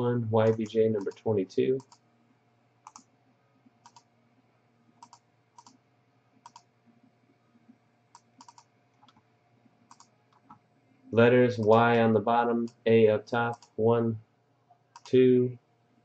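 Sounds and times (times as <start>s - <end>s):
mouse and keyboard clicks: 2.8s - 3.1s, 3.8s - 4.1s, 5.0s - 5.8s, 6.4s - 6.7s, 8.1s - 9.2s, 9.9s - 10.6s, 15.0s - 15.2s.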